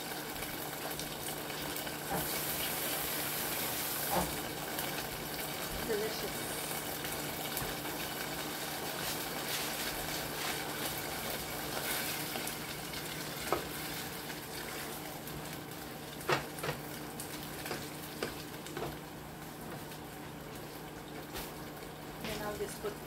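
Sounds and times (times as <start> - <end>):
sauce sizzling in a pan: 0.0 - 23.0.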